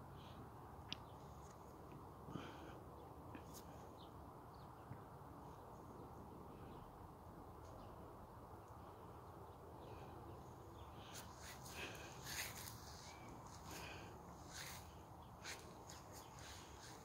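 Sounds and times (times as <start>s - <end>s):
low steady background hum: 0.0s - 17.0s
leaves and twigs rustling: 11.0s - 17.0s.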